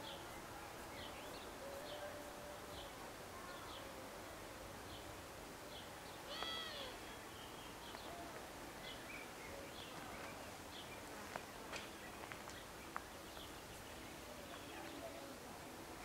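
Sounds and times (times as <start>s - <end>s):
small birds chirping: 0.0s - 4.2s, 4.9s - 16.0s
loud bird call: 6.3s - 7.0s.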